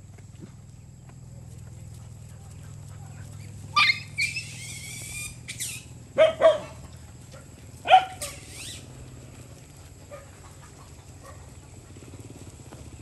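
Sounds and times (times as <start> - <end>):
dogs barking: 2.8 - 4.6, 6.1 - 8.4, 10.0 - 12.1
dogs yelping: 3.4 - 8.9, 10.0 - 12.1.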